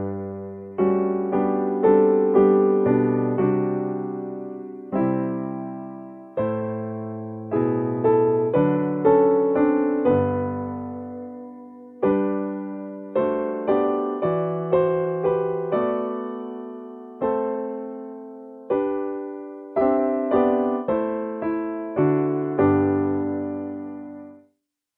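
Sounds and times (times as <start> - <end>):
piano playing hymn chords: 0.0 - 24.4.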